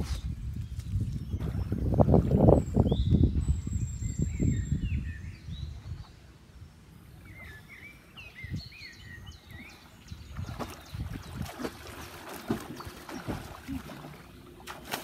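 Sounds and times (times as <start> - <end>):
small birds chirping: 7.2 - 14.3
water splashing from swimming: 9.6 - 15.0.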